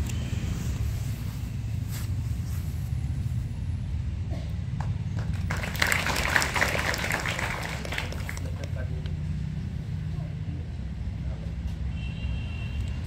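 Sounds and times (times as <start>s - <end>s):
small group applauding: 4.8s - 8.9s.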